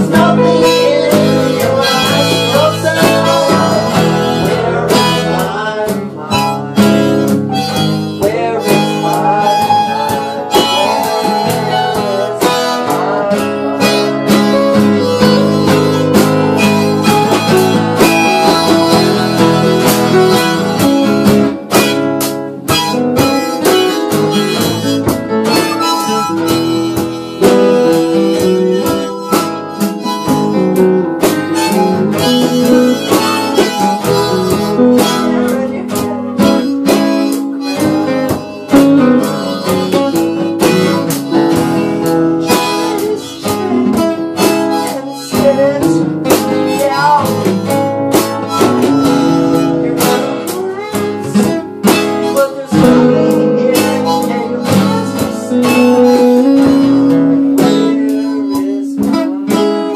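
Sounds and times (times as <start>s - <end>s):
harmonica lead: 0.0s - 59.9s
live band playing: 0.0s - 59.9s.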